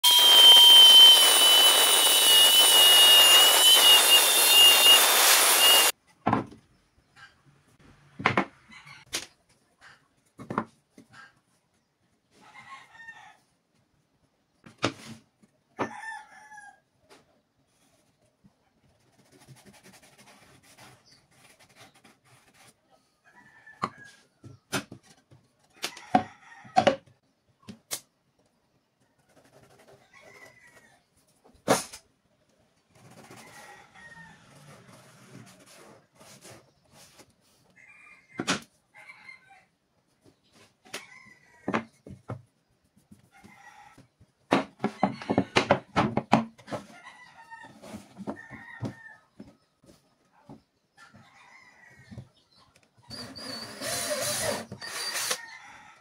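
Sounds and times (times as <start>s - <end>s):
angle grinder cutting steel: 0.0s - 5.9s.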